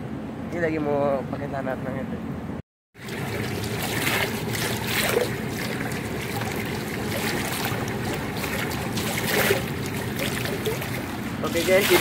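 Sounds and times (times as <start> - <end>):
swimmer's strokes swishing: 3.0 - 12.0
underwater pool water sloshing: 3.0 - 12.0.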